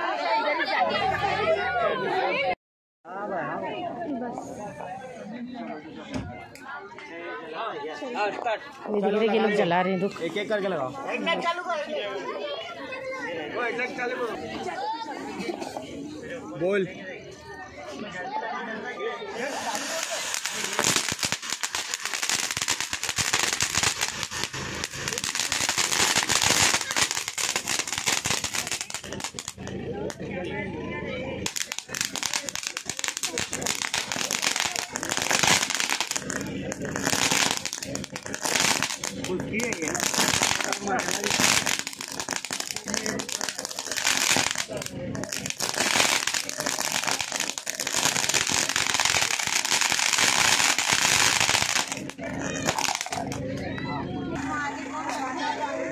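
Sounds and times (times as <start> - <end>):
firework fountain hissing: 19.3 - 30.2, 31.3 - 53.4
rapid crackle of small pops: 19.5 - 29.8, 31.4 - 53.4.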